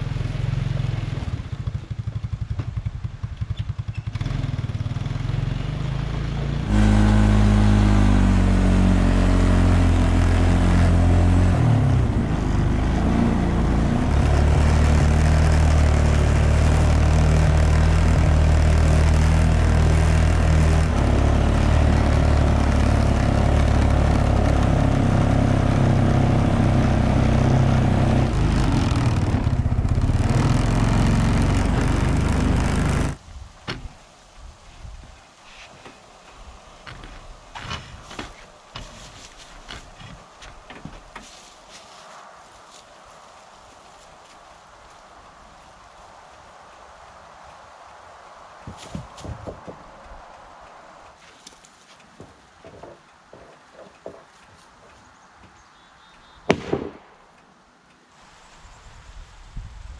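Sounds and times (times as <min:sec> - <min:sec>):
atv engine revving: 0:00.0 - 0:33.2.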